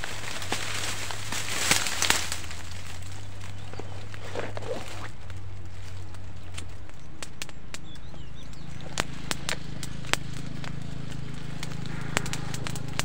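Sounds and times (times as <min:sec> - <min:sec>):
dry grass crackling: 0:00.0 - 0:13.0
steady low hum: 0:00.0 - 0:13.0
sharp snaps: 0:06.1 - 0:13.0.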